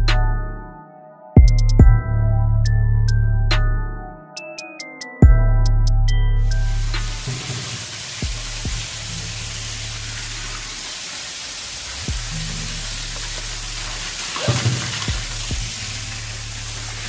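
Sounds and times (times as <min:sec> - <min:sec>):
music with deep bass line: 0:00.0 - 0:00.8, 0:01.4 - 0:04.4, 0:05.0 - 0:10.8, 0:12.0 - 0:17.0
steady hiss: 0:06.7 - 0:17.0.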